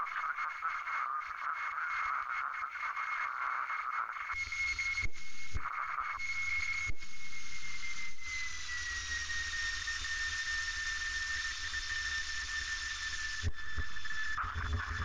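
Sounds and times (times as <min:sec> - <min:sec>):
thin high whistle: 0:04.4 - 0:14.4.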